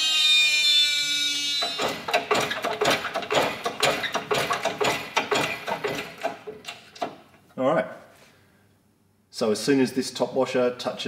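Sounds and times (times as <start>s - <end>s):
metallic clicking and rattling: 1.7s - 7.4s.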